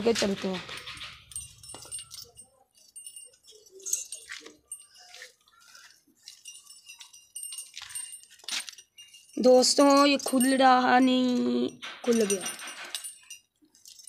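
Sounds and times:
hands fumbling at rope: 0.0s - 10.6s
metal collar clinking: 0.0s - 14.0s
small bell: 0.0s - 14.0s.

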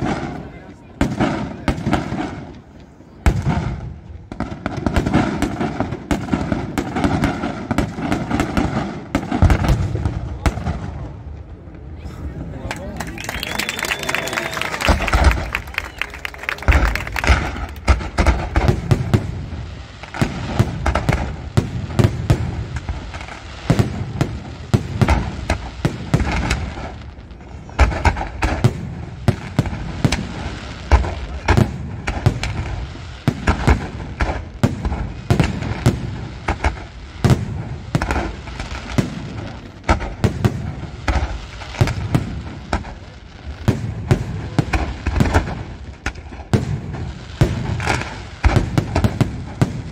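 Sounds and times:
fireworks bursts and bangs: 0.0s - 49.9s.

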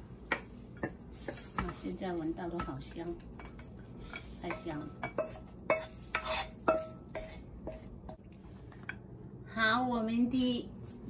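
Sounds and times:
wooden spatula scraping a wok: 0.0s - 8.2s
spatula knocking on wok: 0.2s - 1.8s, 2.4s - 8.2s.

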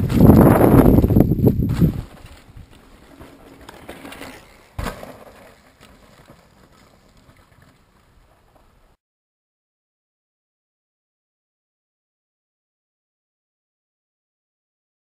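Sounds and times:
bike tyres on dirt trail: 0.0s - 9.0s.

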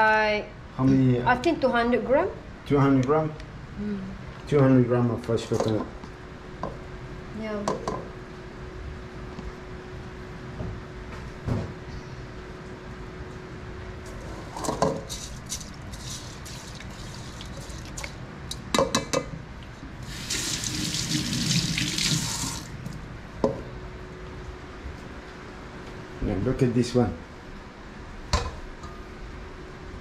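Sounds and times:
tap running water into pot: 20.2s - 22.7s.

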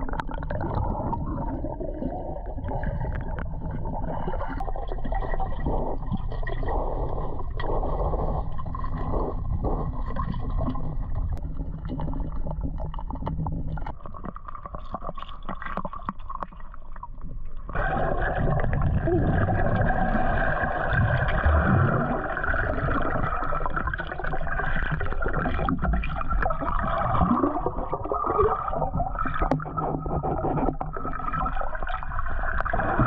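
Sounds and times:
underwater water gurgling: 0.0s - 33.0s
small underwater clicks: 6.2s - 17.7s.

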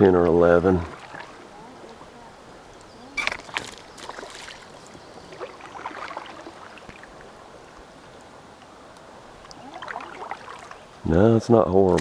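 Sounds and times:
water splashing around a canoe: 0.0s - 8.2s, 9.3s - 11.0s.

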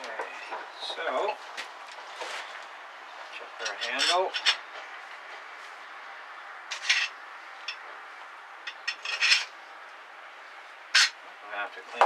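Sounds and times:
metal parts clinking: 3.6s - 4.6s, 6.7s - 7.8s, 8.7s - 9.5s, 11.0s - 11.2s.

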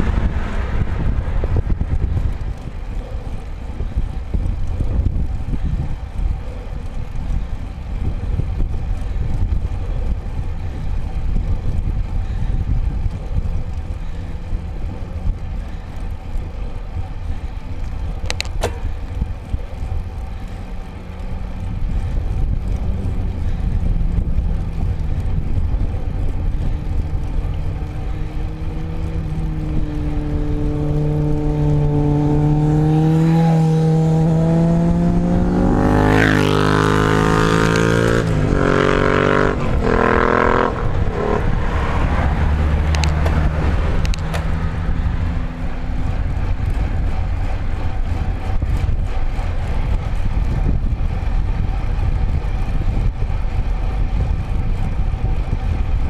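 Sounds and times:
motor vehicle engine hum: 0.0s - 56.0s
wind buffeting microphone: 0.0s - 56.0s
sharp click: 18.3s - 18.9s.

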